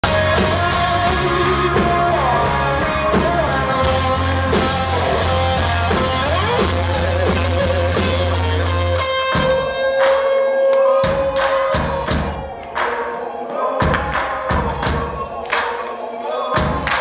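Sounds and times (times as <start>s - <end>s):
bass guitar: 0.0s - 10.3s
drum beat: 0.0s - 10.3s, 11.0s - 13.2s, 13.8s - 15.8s, 16.6s - 17.0s
electric guitar with bent notes: 0.0s - 12.1s.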